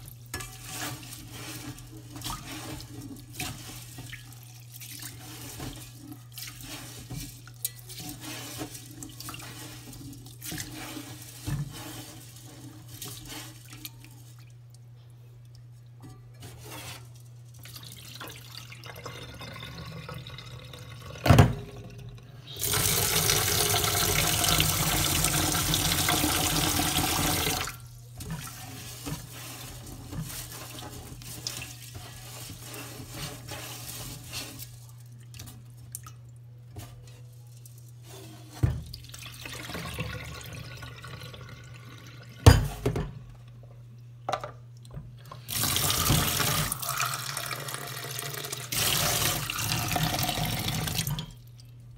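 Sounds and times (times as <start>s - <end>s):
rice swishing in water: 0.0s - 14.5s, 28.2s - 35.8s.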